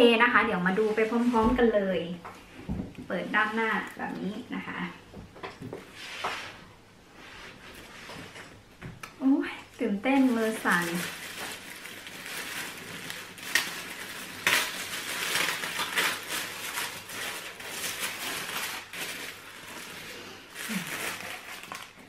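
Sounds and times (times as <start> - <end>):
tissue paper rustling and crinkling: 9.8 - 22.0.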